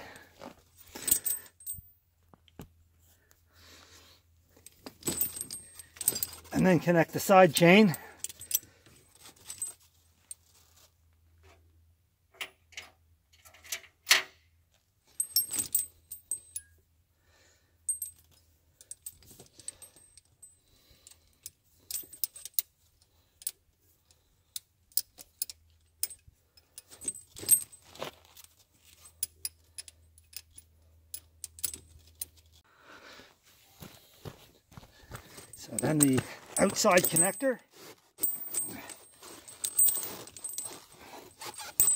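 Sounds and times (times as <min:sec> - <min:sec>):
metal chain links clinking: 0:00.8 - 0:01.9, 0:04.7 - 0:10.5, 0:15.2 - 0:16.8, 0:17.8 - 0:32.6, 0:35.2 - 0:37.6, 0:38.2 - 0:41.9.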